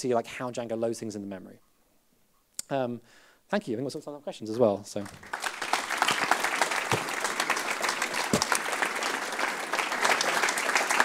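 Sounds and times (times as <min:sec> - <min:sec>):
audience applauding: 0:05.0 - 0:11.0
dull thumps: 0:06.9 - 0:07.3, 0:08.3 - 0:08.6.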